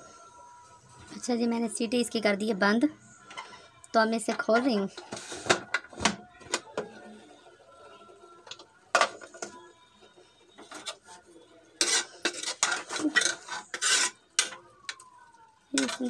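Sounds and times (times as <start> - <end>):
spoon scraping metal pot: 11.8 - 14.6, 15.8 - 16.0.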